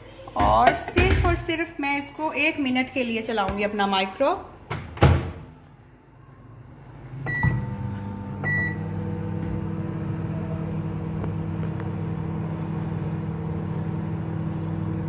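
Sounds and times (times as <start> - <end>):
microwave humming: 6.4 - 15.0
microwave beeps: 7.2 - 9.4.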